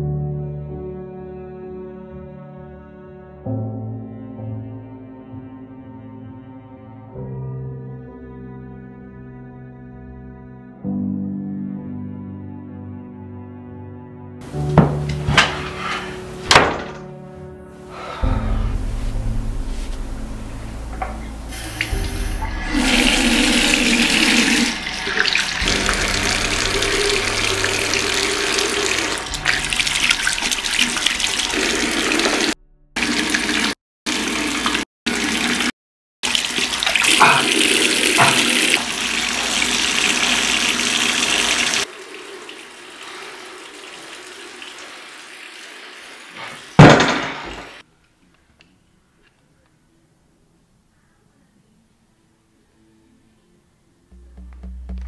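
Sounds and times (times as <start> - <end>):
tap water running into sink: 20.9 - 47.7.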